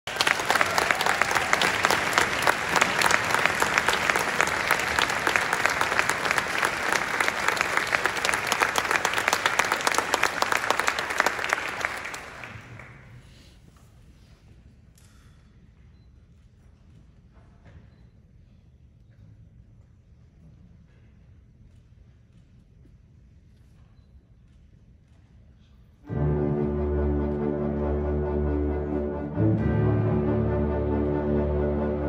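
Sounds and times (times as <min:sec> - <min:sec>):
audience applauding: 0:00.0 - 0:13.4.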